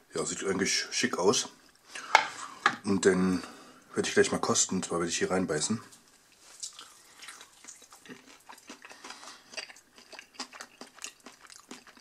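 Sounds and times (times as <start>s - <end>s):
chewing crispy fried chicken: 6.5s - 12.0s.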